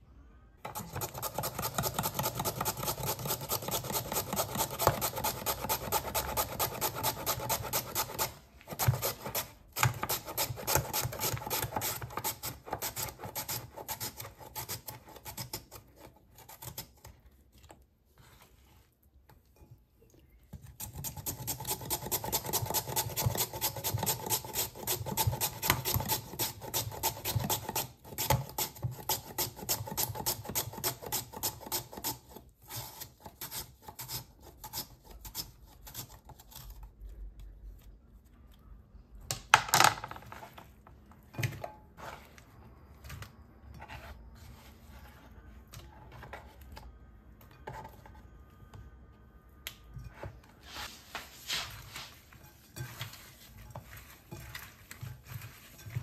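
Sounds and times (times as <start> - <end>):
blade rasping raw potatoes: 0.7 - 17.2, 20.7 - 36.8, 51.5 - 56.0.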